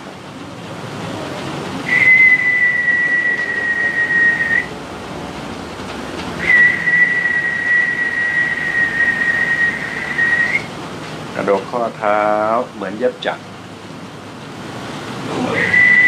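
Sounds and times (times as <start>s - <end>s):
person whistling high notes: 1.9s - 4.7s, 6.4s - 10.7s, 15.4s - 16.0s.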